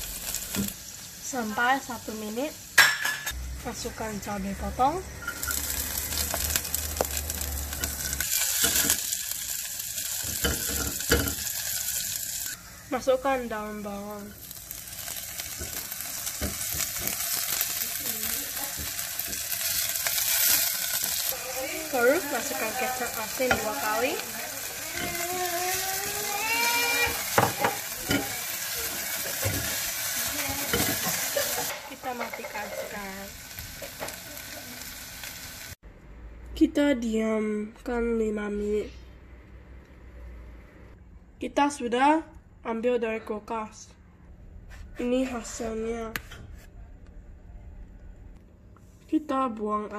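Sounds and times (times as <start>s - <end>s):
garlic sizzling in hot oil: 0.0s - 35.8s.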